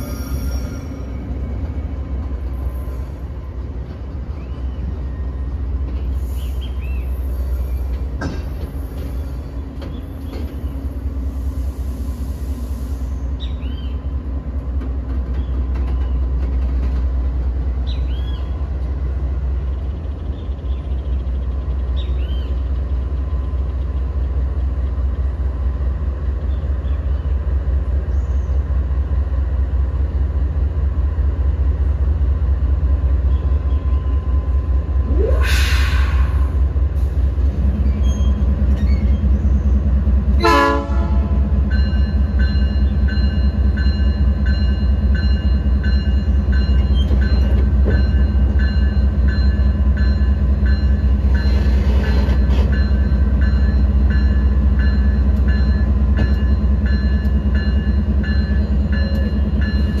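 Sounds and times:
train cars rolling rumble: 0.0 - 60.0
air hiss: 35.3 - 37.3
train horn blast: 40.3 - 41.6.

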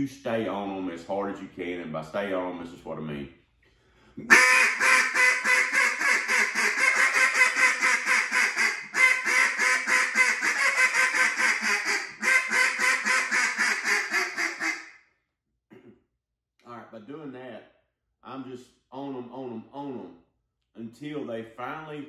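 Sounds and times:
duck call quacking: 4.2 - 14.8.

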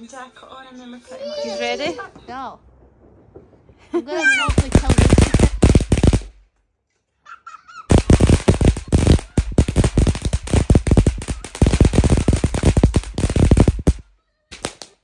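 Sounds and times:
firework crackling: 1.2 - 6.5, 7.9 - 15.0
sharp pops: 2.6 - 6.6, 7.9 - 15.0.

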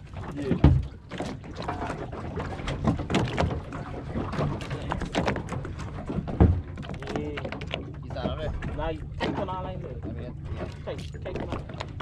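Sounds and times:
water slapping boat hull: 0.0 - 12.0
knocks on boat deck: 4.3 - 8.6.

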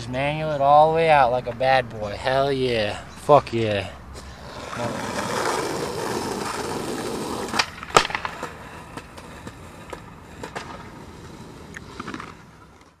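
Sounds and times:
skateboard rolling on asphalt: 4.2 - 13.0
skateboard clacks: 4.4 - 13.0.

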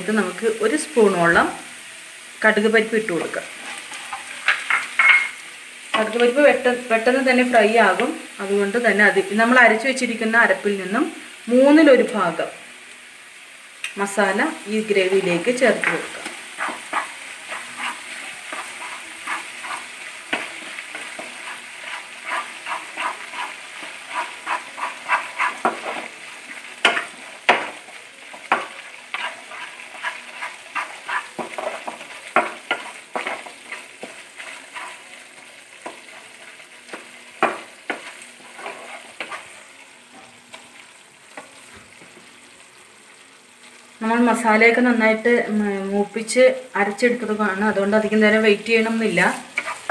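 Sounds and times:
spice paste sizzling in oil: 0.0 - 49.9
spatula scraping and tapping pan: 3.2 - 6.2, 15.8 - 42.3, 49.3 - 49.9.

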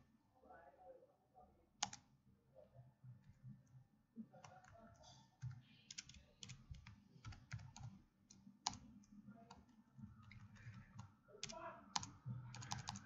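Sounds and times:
faint computer keyboard typing: 1.8 - 2.1, 3.2 - 13.0.

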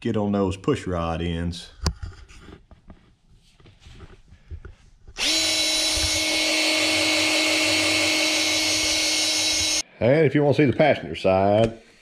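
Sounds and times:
cordless drill whining: 5.2 - 9.8.

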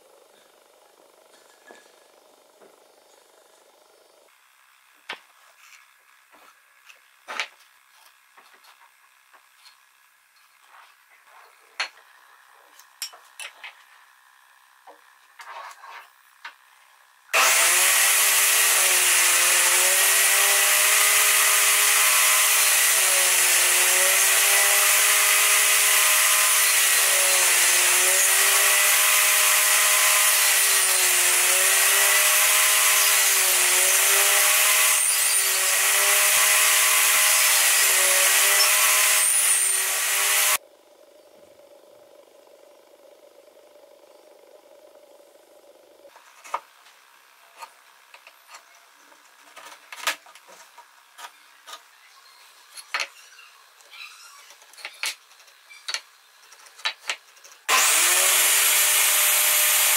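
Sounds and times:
table saw running: 17.3 - 40.6, 57.7 - 59.9
saw blade cutting wood: 17.4 - 40.6, 56.8 - 59.9.

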